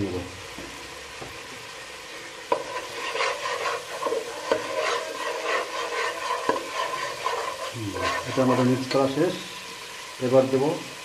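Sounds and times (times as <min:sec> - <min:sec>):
masala sizzling in oil: 0:00.0 - 0:11.0
ladle stirring and scraping pot: 0:02.4 - 0:09.8.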